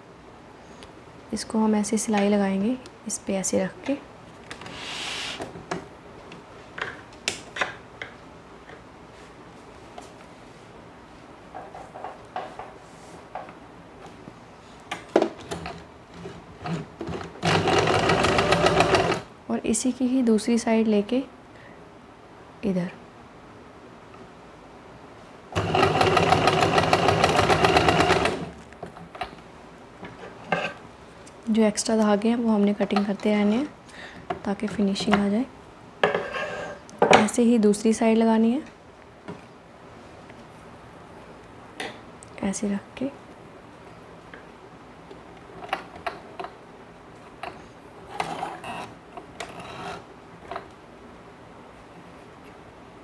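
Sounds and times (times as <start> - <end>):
electric sewing machine stitching: 16.7 - 19.3, 25.6 - 28.5.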